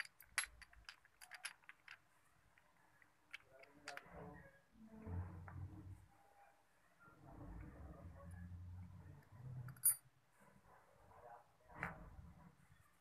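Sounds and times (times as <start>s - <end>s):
metal gears clinking: 0.0s - 2.0s.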